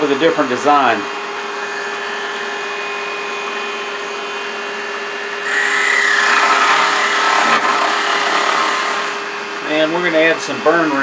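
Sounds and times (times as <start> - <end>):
turning tool cutting wood: 5.4 - 9.3
wood lathe running: 5.4 - 9.3.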